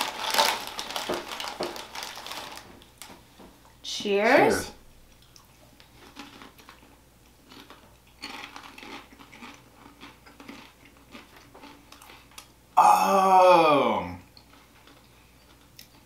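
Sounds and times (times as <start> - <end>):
chewing crisps: 0.0 - 3.0, 5.1 - 12.6, 14.3 - 16.0
loud voice falling in pitch: 12.8 - 14.2.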